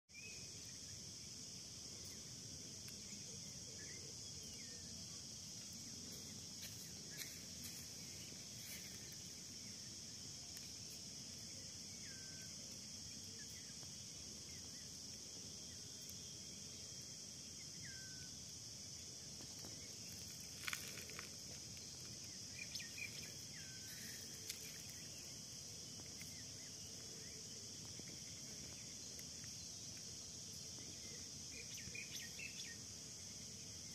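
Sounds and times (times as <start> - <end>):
faint high-pitched insect chorus: 0.1 - 33.9.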